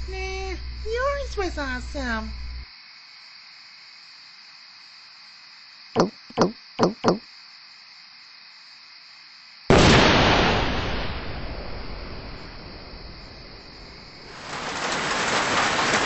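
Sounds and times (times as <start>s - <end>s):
cartoon gulps: 6.0s - 7.2s.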